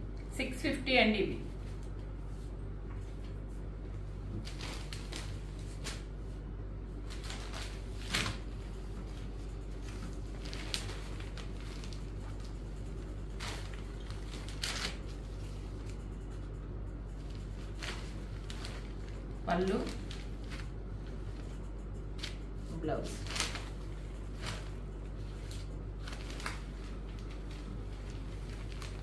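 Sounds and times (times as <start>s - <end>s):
steady low hum: 0.0s - 29.0s
cloth rustling and swishing: 17.3s - 21.5s, 22.2s - 29.0s.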